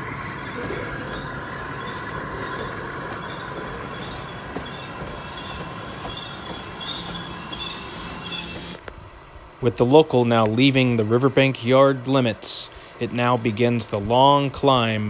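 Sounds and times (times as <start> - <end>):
high-pitched wheel squeals: 0.0 - 8.8
train wheels rolling on track: 0.0 - 8.8.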